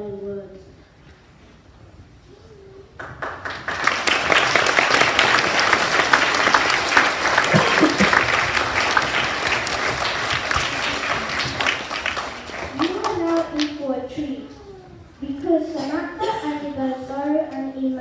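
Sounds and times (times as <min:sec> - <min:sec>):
children applauding: 0:03.0 - 0:13.7.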